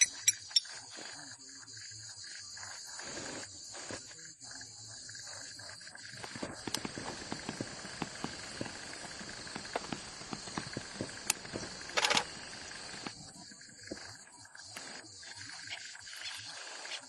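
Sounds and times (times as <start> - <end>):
insects chirping: 0.0 - 17.0
sharp clicks: 6.2 - 13.2.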